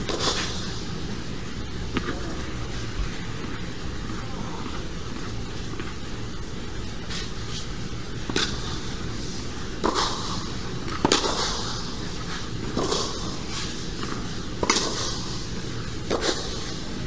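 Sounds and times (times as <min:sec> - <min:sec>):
steady low hum: 0:00.0 - 0:17.0
tennis ball strikes off racquet: 0:08.3 - 0:08.6, 0:09.8 - 0:11.7, 0:12.3 - 0:15.3, 0:16.0 - 0:16.7.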